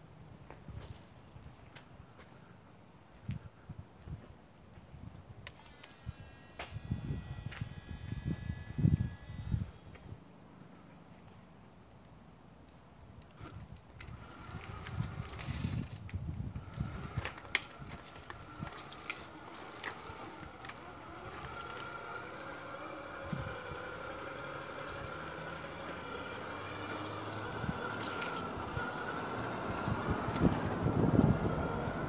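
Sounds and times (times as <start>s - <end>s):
toy truck motor and gear whine: 5.5s - 10.2s, 13.3s - 32.0s
sharp clicks: 13.0s - 22.6s.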